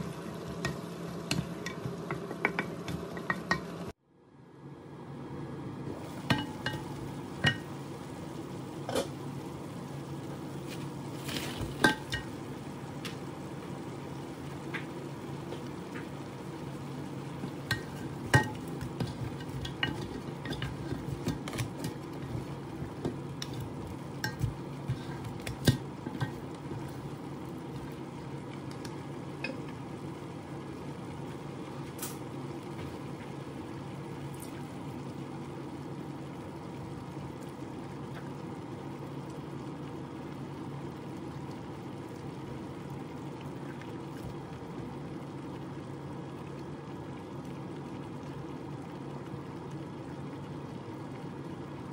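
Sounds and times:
pan sizzling: 0.0 - 4.0, 4.8 - 51.9
spatulas clacking in frying pan: 0.6 - 3.8, 6.2 - 7.7, 11.2 - 12.4, 17.6 - 22.1, 23.4 - 26.9.

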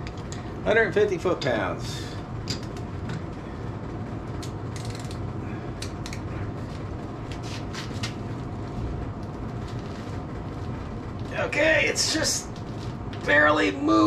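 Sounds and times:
steady low hum: 0.0 - 14.0
differential creaks and clicks: 4.3 - 8.2.

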